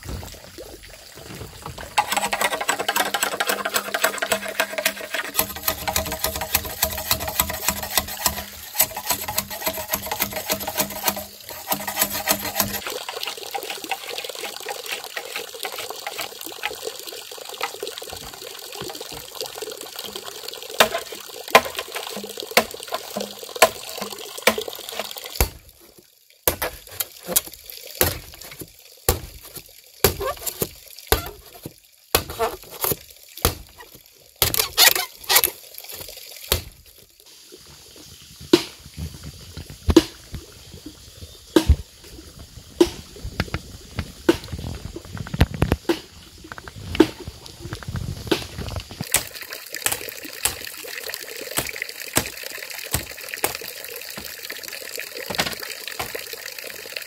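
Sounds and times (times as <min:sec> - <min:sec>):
running water splashing: 0:00.0 - 0:57.0
sharp splashes or knocks: 0:20.8 - 0:36.8, 0:48.2 - 0:50.9, 0:51.6 - 0:54.3.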